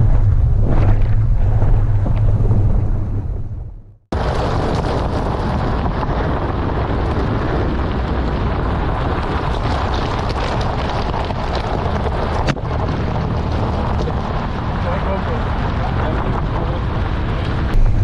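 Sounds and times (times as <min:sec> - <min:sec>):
wind rushing over microphone: 0:00.0 - 0:18.0
tyre noise on gravel road: 0:04.1 - 0:18.0.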